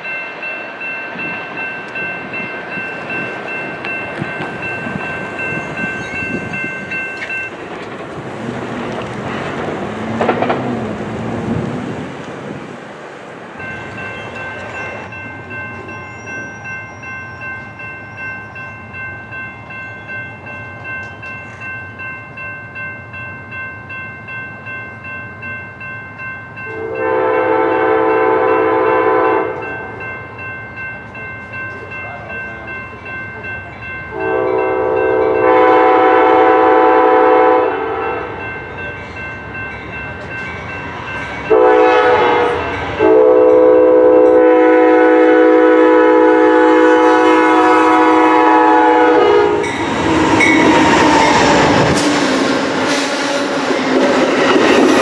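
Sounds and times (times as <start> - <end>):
crossing bell ringing: 0.0 - 11.0, 13.5 - 55.0
train horn blasts: 26.7 - 29.8, 34.1 - 38.4, 41.5 - 49.8.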